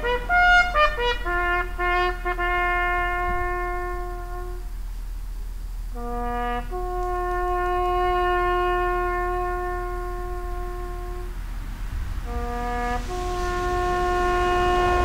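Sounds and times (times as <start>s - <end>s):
bugle call: 0.0s - 4.8s, 5.9s - 11.4s, 12.2s - 15.0s.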